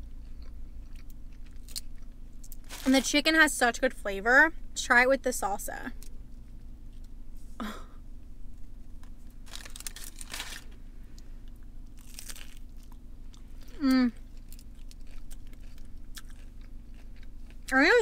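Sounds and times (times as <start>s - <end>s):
crunching and chewing taco: 0.0s - 3.1s, 8.5s - 18.0s
person humming mm: 13.7s - 14.2s.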